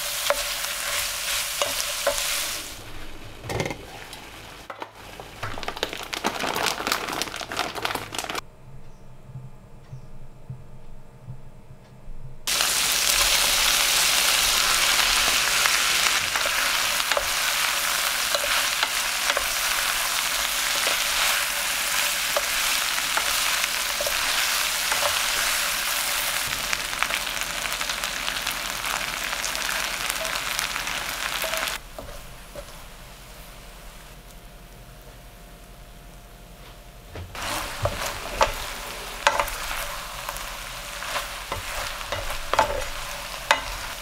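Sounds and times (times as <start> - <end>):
food sizzling in a frying pan: 0.0 - 8.4, 12.5 - 35.7, 37.3 - 44.0
wooden spoon tapping and scraping pan: 31.4 - 32.8, 37.4 - 44.0.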